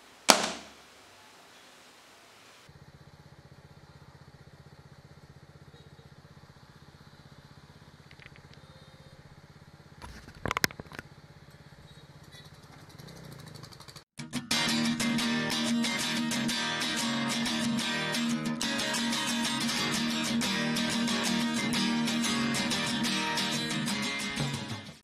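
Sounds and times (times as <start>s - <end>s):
loud sharp crackles: 0.0s - 1.0s
motorcycle engine idling: 2.7s - 14.0s.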